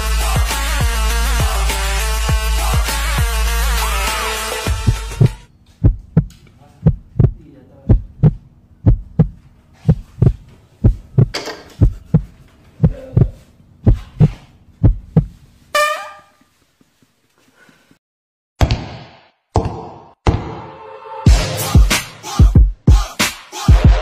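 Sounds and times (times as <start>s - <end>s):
heartbeat thumps: 4.7s - 15.4s
steady low hum: 4.8s - 15.5s.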